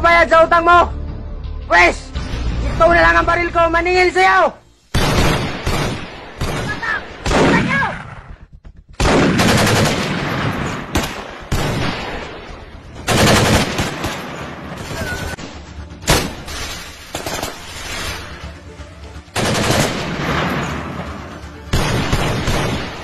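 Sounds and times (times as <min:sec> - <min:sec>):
gunshots and rapid-fire bursts: 0:04.9 - 0:18.2, 0:19.4 - 0:23.0.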